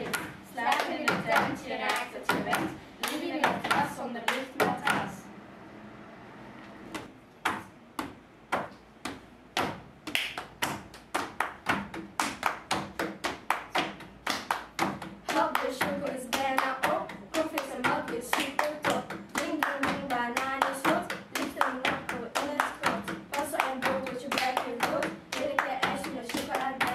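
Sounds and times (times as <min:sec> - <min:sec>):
hand claps: 0:00.0 - 0:05.1, 0:07.0 - 0:26.9
voices singing: 0:00.0 - 0:06.0, 0:15.2 - 0:26.9
hands slapping a table: 0:07.0 - 0:15.4.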